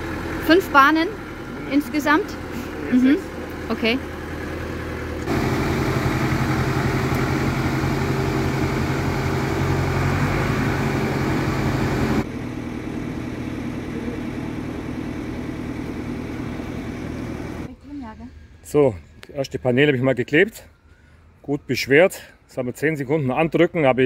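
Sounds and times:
motor running: 0.0s - 17.7s.

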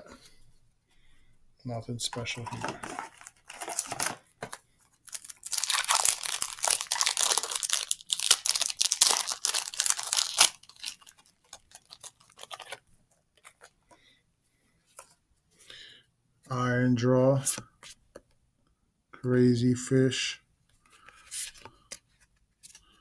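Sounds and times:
foil wrapper tearing and crinkling: 3.0s - 4.2s, 5.1s - 12.8s.

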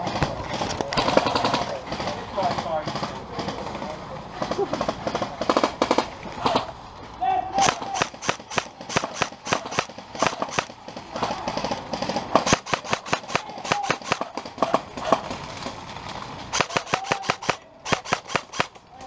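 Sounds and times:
airsoft guns firing: 0.0s - 3.8s, 4.4s - 6.8s, 7.5s - 15.8s, 16.5s - 19.0s.

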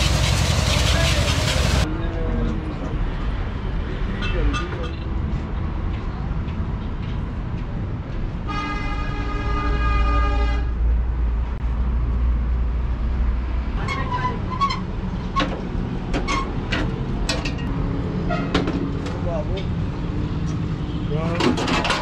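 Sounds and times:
low rumble of traffic: 0.0s - 22.0s
vehicle horn: 8.5s - 10.7s.

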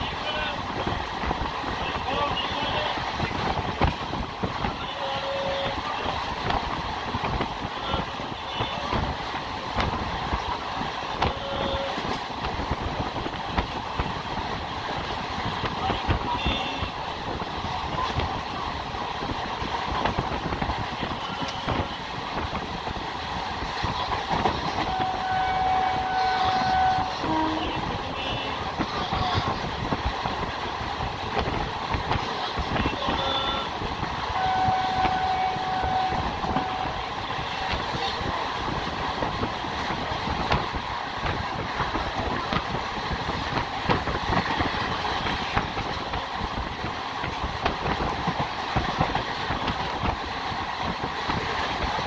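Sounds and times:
train wheels rumbling on rail: 0.0s - 52.0s
train horn: 4.6s - 6.2s, 7.6s - 9.1s, 11.2s - 12.2s, 16.3s - 17.0s, 21.0s - 22.0s, 24.7s - 28.7s, 32.8s - 33.7s, 34.3s - 37.7s.

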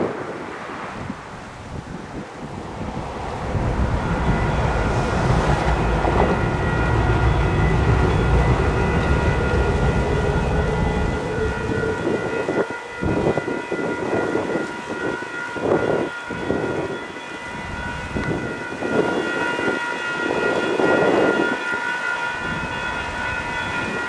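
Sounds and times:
heavy low rumble: 1.7s - 12.3s
crossing warning bells ringing: 2.2s - 24.0s.

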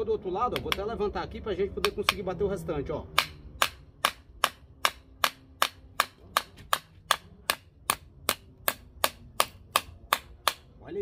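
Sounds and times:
hammer striking staple into wood: 3.2s - 10.7s.

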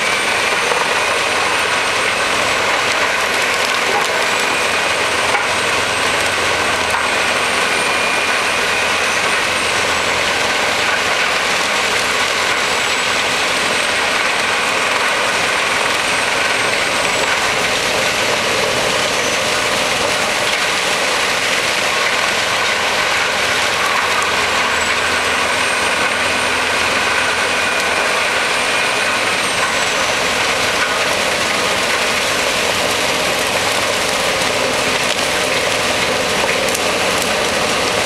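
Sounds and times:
truck engine running under load: 0.0s - 38.0s
wood grinder grinding branches: 0.0s - 38.0s.

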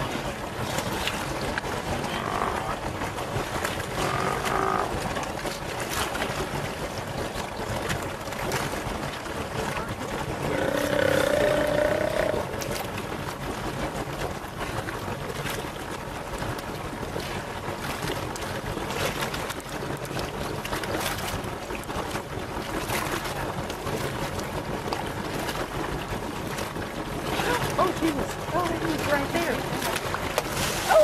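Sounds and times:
rushing water: 0.0s - 31.0s
wind: 0.0s - 31.0s
sea lion growling roar: 2.0s - 2.8s, 3.9s - 5.2s, 10.4s - 12.7s.

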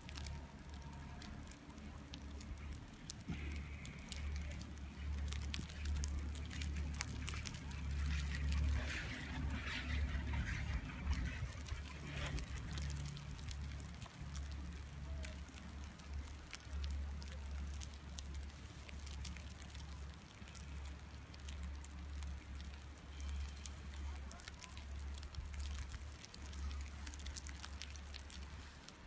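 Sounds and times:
chairlift whirring rattle: 6.2s - 13.9s.

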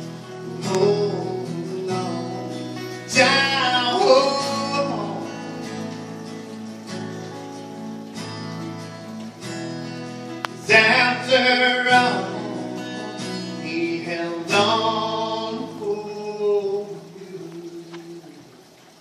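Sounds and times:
acoustic guitar: 0.0s - 19.0s
man singing: 0.4s - 5.8s, 10.6s - 18.5s.

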